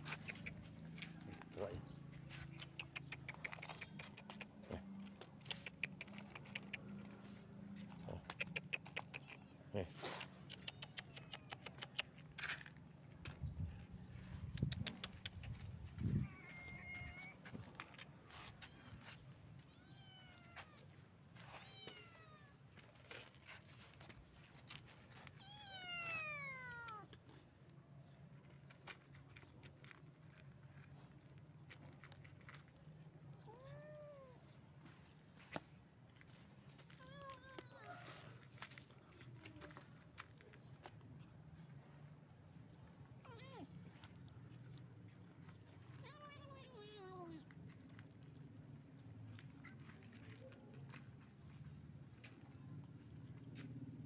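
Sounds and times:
cats crunching dry kibble: 0.0 - 33.8, 43.3 - 51.6
cat meowing: 16.2 - 17.4, 19.6 - 22.6, 25.4 - 27.1, 33.4 - 34.4.

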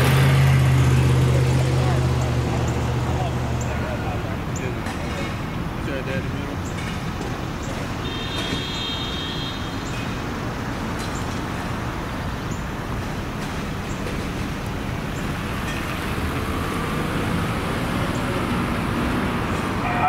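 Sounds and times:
road traffic noise: 0.0 - 20.0.

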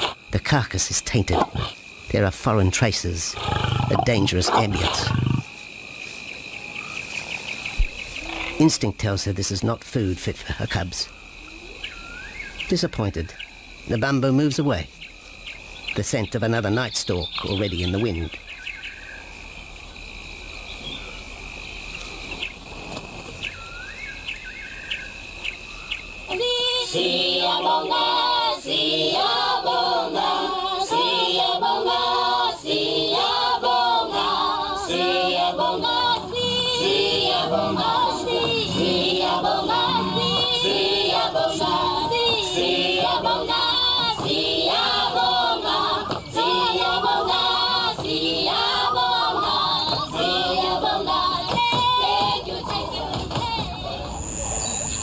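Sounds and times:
choir singing: 26.3 - 54.2
steady high whine: 32.8 - 51.4.

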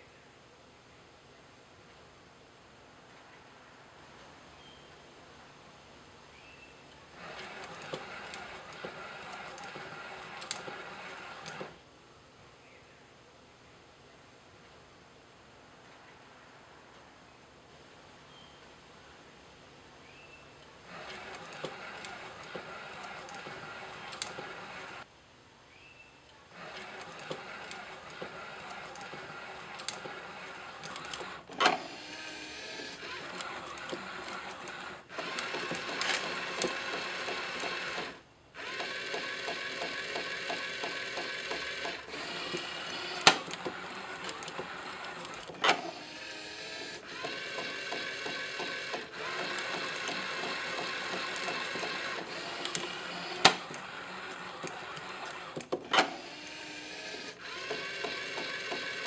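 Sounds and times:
machine whir: 7.2 - 11.8, 20.9 - 25.1, 26.5 - 59.0
sharp clacks of moving parts: 33.0 - 46.0, 47.2 - 56.2.

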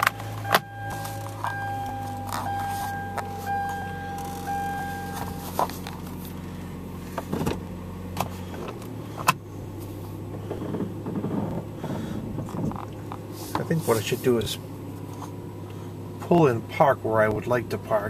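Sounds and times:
steady high tone: 0.0 - 5.7
car engine running: 0.0 - 18.0.

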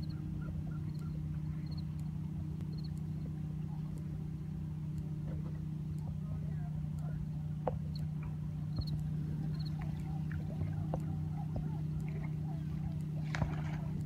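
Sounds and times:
steady low hum: 0.0 - 14.0
water lapping at rocky shore: 0.0 - 14.0
small sharp splashes: 7.6 - 14.0.

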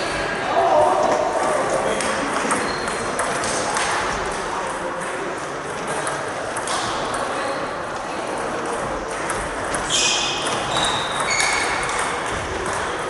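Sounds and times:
murmur of voices: 0.0 - 13.0
table tennis balls clicking: 9.1 - 13.0.

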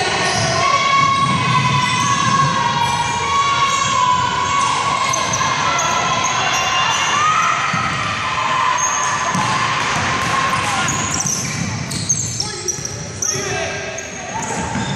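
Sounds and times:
crowd voices and shouts: 0.0 - 14.9
basketball bouncing: 0.9 - 2.9
shoe squeaks: 3.0 - 7.6, 10.8 - 14.9.

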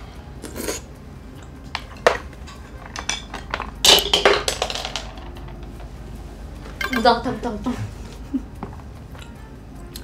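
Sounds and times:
chopsticks clattering: 1.4 - 5.7.

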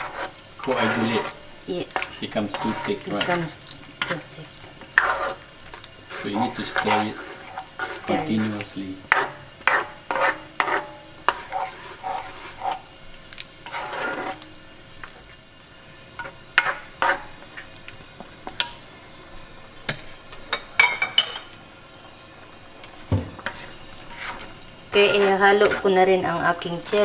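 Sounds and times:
spatula scraping a wok: 0.0 - 15.3, 16.0 - 17.8, 23.0 - 27.0.

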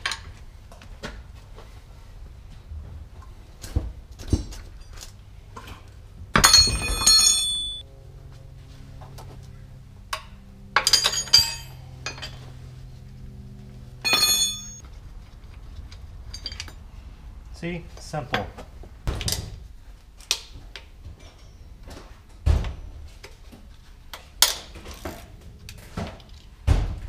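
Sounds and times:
metal parts clanking: 6.4 - 7.8, 10.8 - 12.5, 14.0 - 14.8, 15.8 - 16.8.

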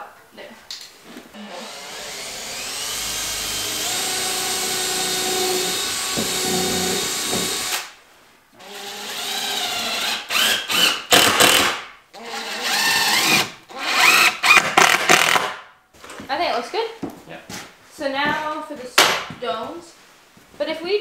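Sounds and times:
cordless drill running into wood: 1.6 - 7.9, 8.6 - 11.7, 12.6 - 15.4.

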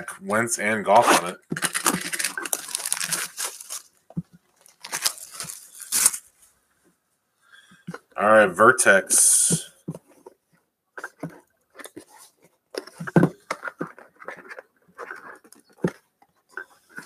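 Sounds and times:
trading cards rustling: 0.3 - 6.3, 11.0 - 16.0.

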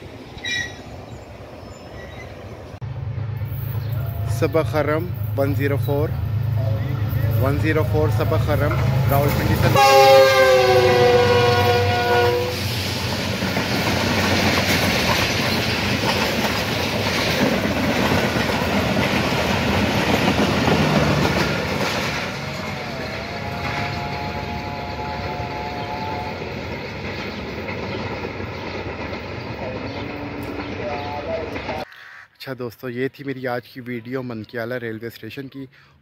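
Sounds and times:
train wheels clacking over rail joints: 7.2 - 31.9
train horn chord: 8.5 - 12.7, 22.6 - 26.6.

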